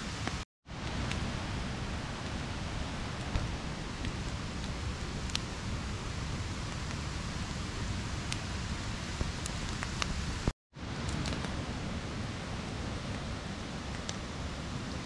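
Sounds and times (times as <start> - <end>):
campfire crackling: 0.1 - 15.0
fire pops: 3.1 - 11.6, 13.9 - 14.2.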